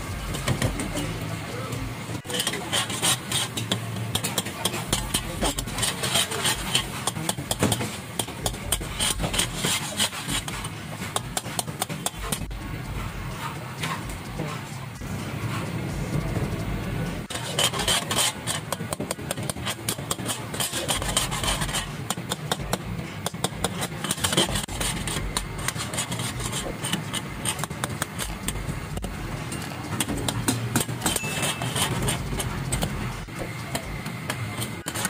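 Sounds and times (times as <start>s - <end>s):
gas burner rumble: 0.0s - 35.0s
metal ladle scraping a wok: 2.2s - 12.5s, 17.2s - 33.2s.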